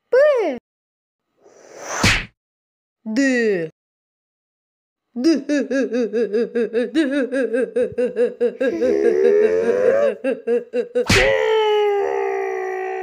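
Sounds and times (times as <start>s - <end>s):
cartoon mocking laughter: 5.2s - 11.4s.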